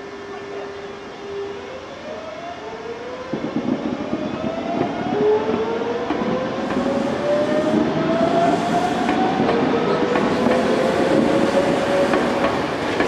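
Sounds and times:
train wheel rumble: 3.3s - 13.0s.

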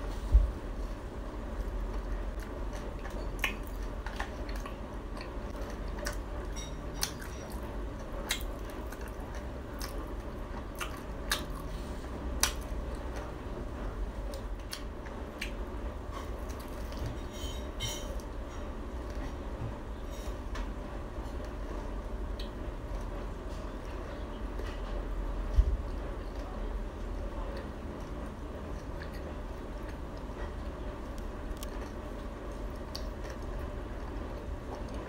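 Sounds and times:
steady low hum: 0.0s - 35.0s
person chewing crunchy food: 1.5s - 19.4s, 27.1s - 35.0s.

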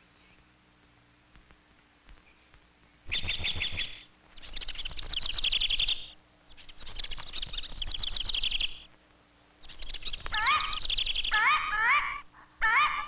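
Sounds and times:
songbird trilling: 2.2s - 8.9s, 9.6s - 13.0s.

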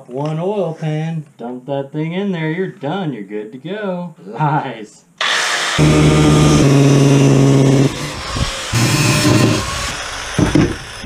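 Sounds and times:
angle grinder cutting metal: 5.2s - 11.0s.

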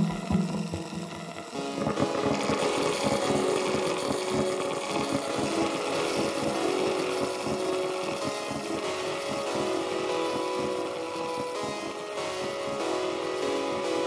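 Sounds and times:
held tones: 0.0s - 8.2s
glitch electronic music: 0.0s - 14.0s.

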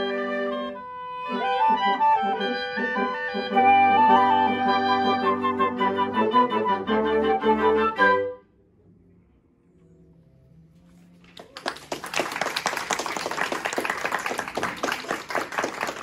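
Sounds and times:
audience applause: 11.2s - 16.0s.

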